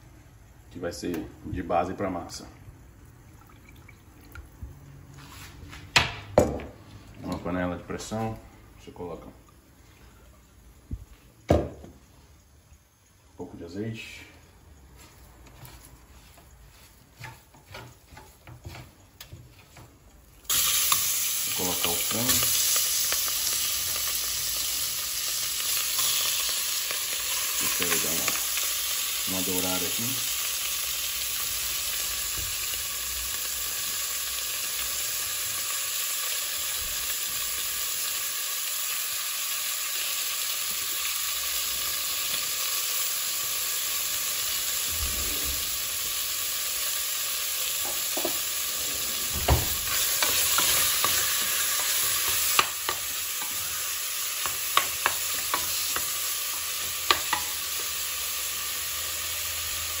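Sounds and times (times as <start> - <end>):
chicken sizzling in oil: 20.4 - 60.0
wooden spoon knocking pot: 47.8 - 48.4, 54.4 - 56.1.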